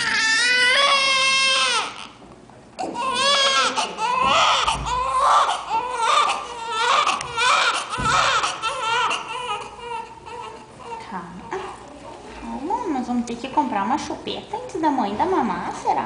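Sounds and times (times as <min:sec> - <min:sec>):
newborn baby crying: 0:00.0 - 0:02.2, 0:02.8 - 0:11.8.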